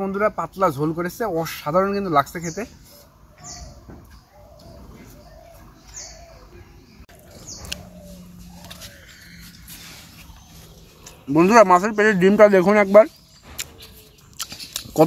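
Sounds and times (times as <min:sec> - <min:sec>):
faint bird calls: 0:02.4 - 0:12.7.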